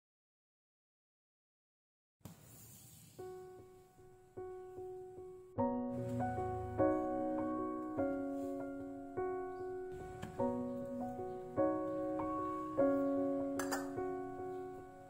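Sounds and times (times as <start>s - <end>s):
gentle solo piano chords: 3.3s - 15.0s.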